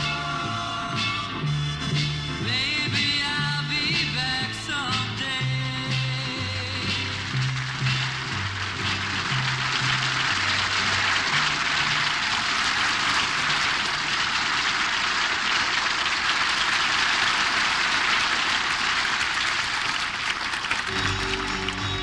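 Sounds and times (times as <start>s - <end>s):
band low notes: 0.0s - 12.4s, 20.9s - 22.0s
audience applauding: 5.9s - 22.0s.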